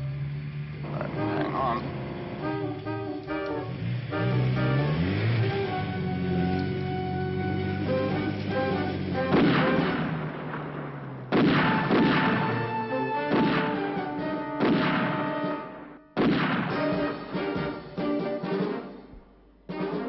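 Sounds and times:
dramatic orchestral chords: 0.0s - 20.0s
percussion hits: 16.2s - 18.8s.

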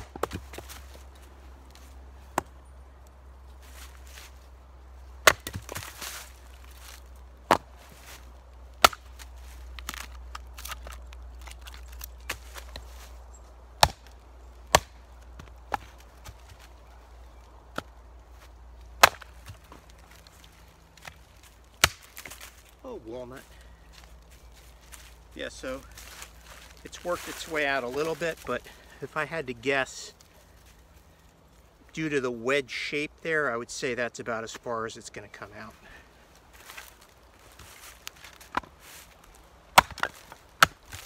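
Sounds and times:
hatchet chopping wood: 0.0s - 0.8s, 5.2s - 6.1s, 7.5s - 7.8s, 8.8s - 12.8s, 13.8s - 16.6s, 19.0s - 19.8s, 21.8s - 22.4s, 39.7s - 41.0s.

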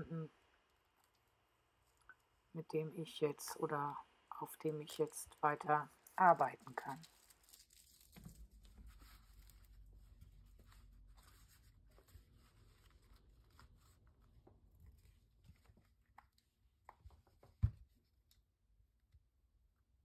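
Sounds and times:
paper rustling: 6.6s - 16.0s.

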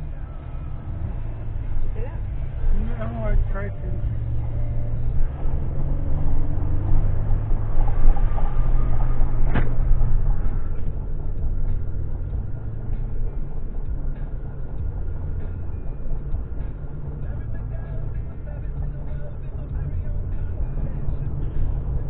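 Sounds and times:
car cabin road rumble: 0.0s - 22.0s
sharp click: 9.5s - 9.8s.

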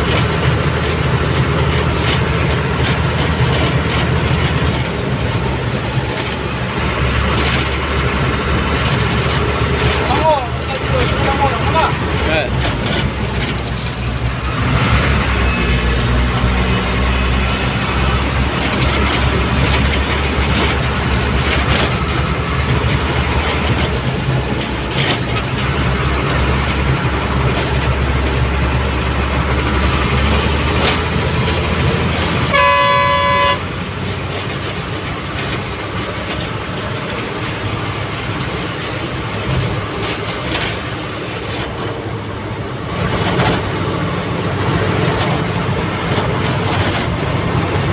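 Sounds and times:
vehicle engine and road drone: 0.0s - 47.9s
vehicle horn: 32.4s - 33.7s.

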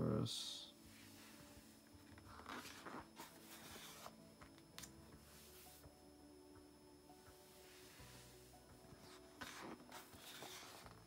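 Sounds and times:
book page turning: 0.9s - 5.9s, 7.6s - 11.0s.

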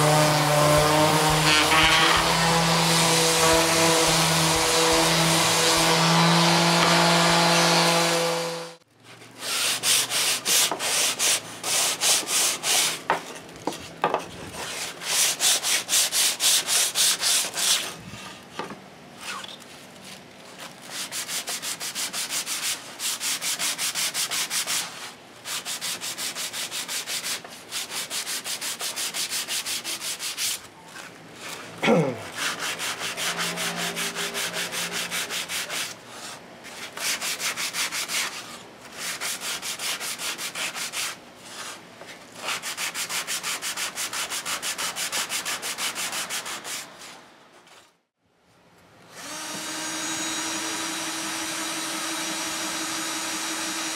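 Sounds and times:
sandpaper rubbing on wood: 0.0s - 8.8s, 9.4s - 13.0s, 14.6s - 18.0s, 20.9s - 30.6s, 32.2s - 41.8s, 42.4s - 47.2s.

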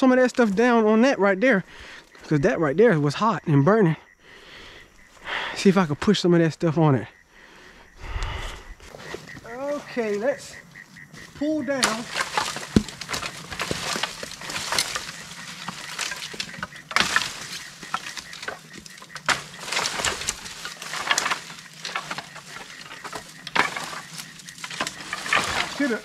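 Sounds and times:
sticks and brush rustling: 8.8s - 26.0s
sticks snapping: 11.8s - 26.0s.

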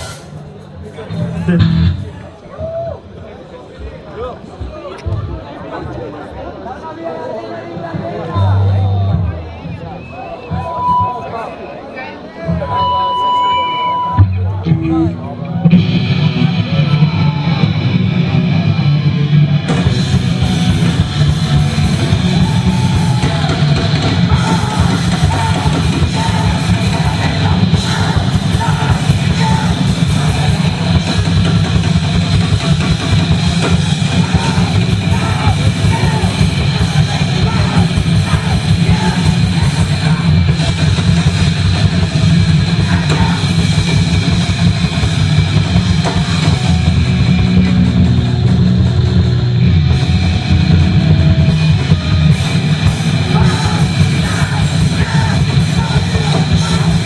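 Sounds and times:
fast drums and cymbals: 0.0s - 1.8s, 19.7s - 57.0s
distorted guitar and bass: 0.0s - 2.4s, 12.5s - 57.0s
shouted vocals: 21.8s - 31.1s, 33.6s - 40.6s, 42.7s - 44.0s, 53.1s - 57.0s.

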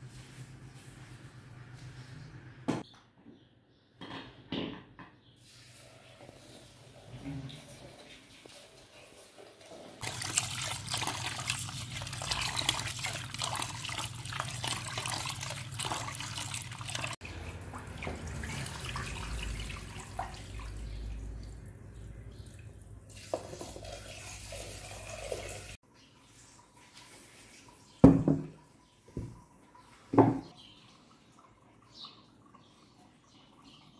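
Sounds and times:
water spilling onto tiled floor: 5.4s - 27.9s
tap water running into metal pot: 10.0s - 20.8s, 23.1s - 25.8s.

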